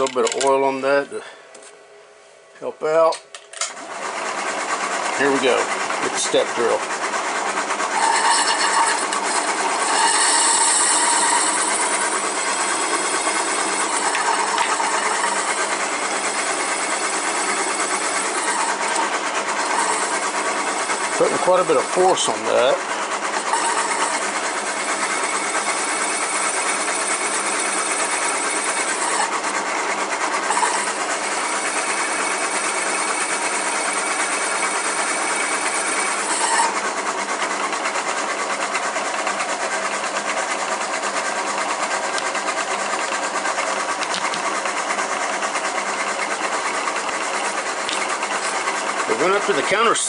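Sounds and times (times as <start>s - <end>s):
milling machine running: 3.7s - 50.0s
high-pitched metal cutting whine: 7.8s - 29.6s, 30.3s - 37.0s.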